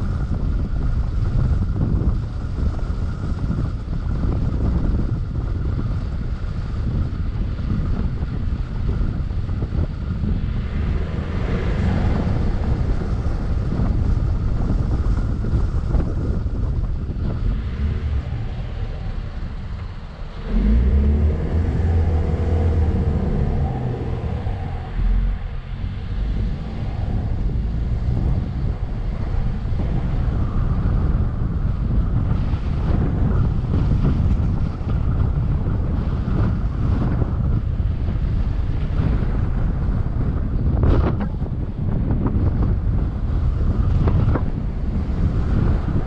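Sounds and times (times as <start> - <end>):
vehicle engine and tyres rumbling: 0.0 - 46.0
wind buffeting microphone: 0.0 - 46.0.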